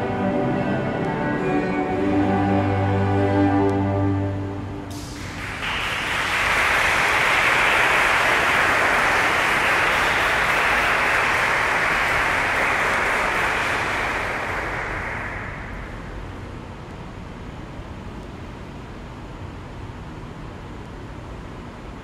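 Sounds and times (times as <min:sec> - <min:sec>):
audience applauding: 0:04.9 - 0:16.1.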